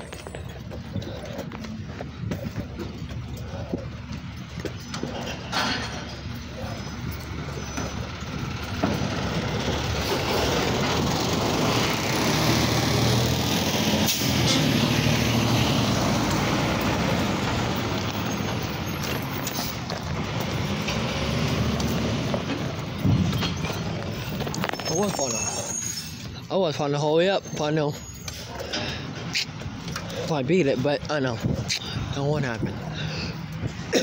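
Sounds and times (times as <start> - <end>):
garbage truck engine revving: 6.8 - 24.6.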